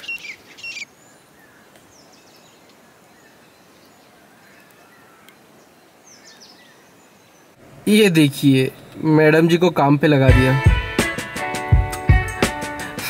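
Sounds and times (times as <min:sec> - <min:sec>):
distant bird chirps: 0:00.0 - 0:09.2.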